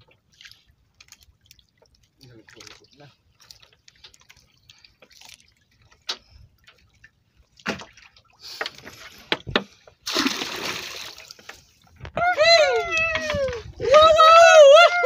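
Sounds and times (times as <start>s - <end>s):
water dripping and sloshing: 0.0s - 14.0s
knocks and clicks of wet net: 7.6s - 9.8s.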